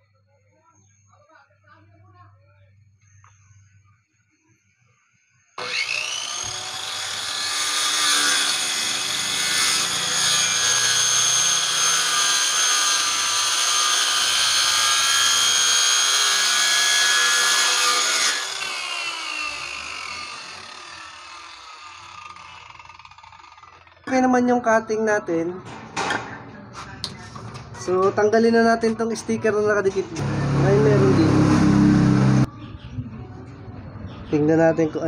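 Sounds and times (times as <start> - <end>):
circular saw cutting wood: 5.6 - 24.1, 30.2 - 32.5.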